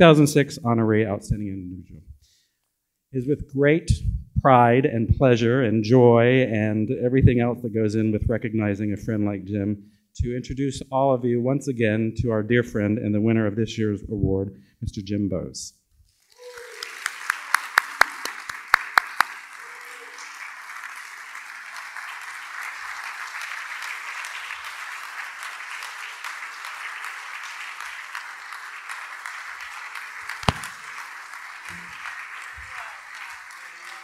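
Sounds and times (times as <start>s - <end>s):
audience applauding: 16.2s - 34.0s
close sharp claps: 16.2s - 34.0s.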